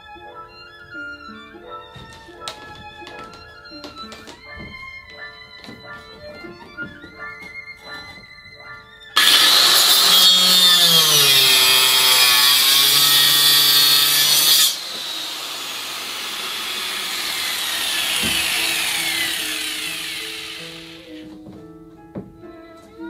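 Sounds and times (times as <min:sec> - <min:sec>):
power cutting tool whining: 0:09.2 - 0:21.2.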